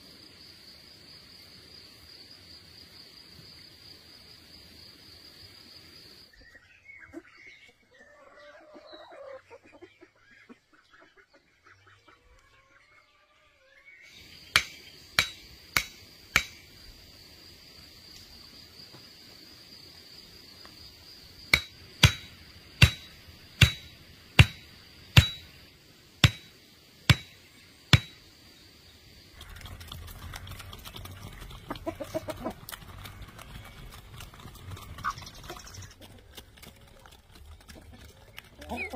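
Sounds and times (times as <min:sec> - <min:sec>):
sharp knocks: 0:14.5 - 0:16.6, 0:21.6 - 0:25.5, 0:26.2 - 0:26.5, 0:27.1 - 0:27.4, 0:28.0 - 0:28.2.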